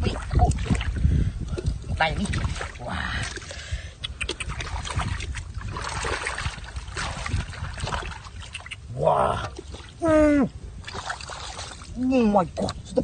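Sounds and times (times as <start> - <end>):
wet slaps and splashes: 1.6 - 8.9, 10.8 - 11.9
hands squelching through mud: 1.6 - 10.0, 10.8 - 12.0.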